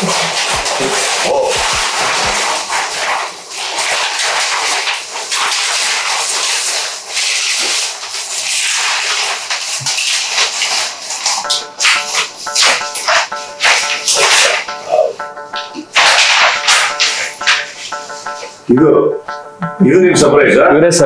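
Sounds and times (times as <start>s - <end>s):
paper wrapping rustling and crinkling: 0.0s - 3.3s.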